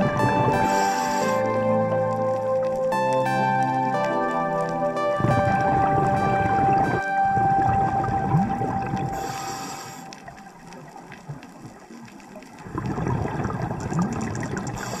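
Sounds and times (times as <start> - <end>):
exhaled air bubbling: 0.0 - 3.6, 4.9 - 15.0
regulator inhale hiss: 0.6 - 1.6, 9.2 - 10.5, 14.8 - 15.0.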